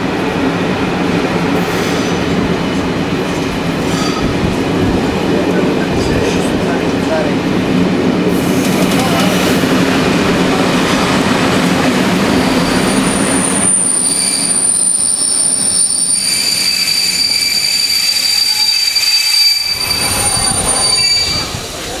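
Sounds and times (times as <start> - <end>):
train wheels rumbling on rails: 0.0 - 22.0
train wheels and brakes squealing: 1.6 - 2.4, 3.8 - 4.4, 12.2 - 21.8.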